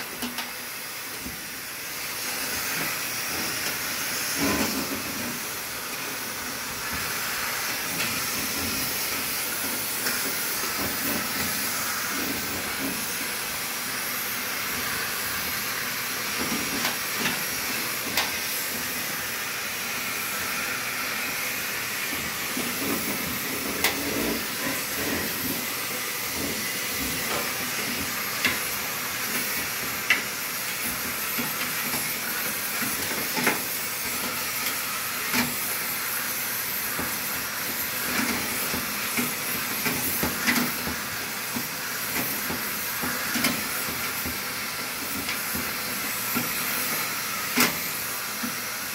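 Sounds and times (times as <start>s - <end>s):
vacuum cleaner suction hiss: 0.0s - 48.9s.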